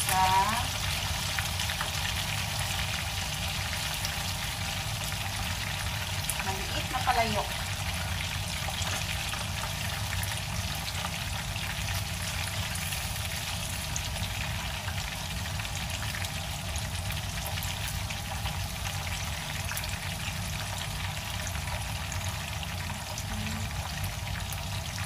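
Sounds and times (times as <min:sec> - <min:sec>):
fish frying in oil: 0:00.0 - 0:25.0.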